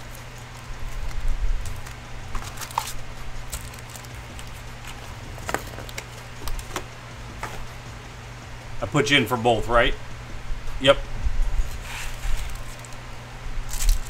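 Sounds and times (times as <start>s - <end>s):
foil packs crinkling: 0.0s - 6.9s, 11.7s - 13.0s, 13.7s - 14.0s
steady low hum: 0.0s - 14.0s.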